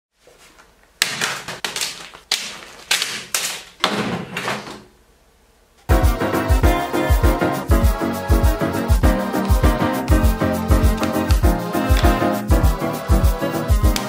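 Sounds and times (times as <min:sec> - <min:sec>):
background music with steady beat: 0:05.9 - 0:14.0.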